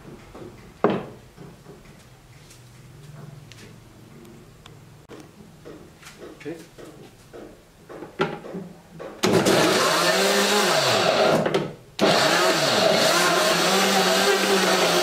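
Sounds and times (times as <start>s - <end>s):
blender motor chopping: 9.2s - 15.0s.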